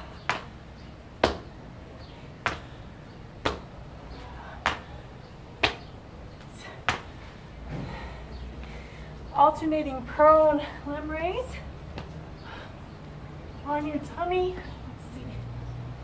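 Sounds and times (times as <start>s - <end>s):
sneakers slapping tiled floor: 1.2s - 1.6s, 3.4s - 5.0s.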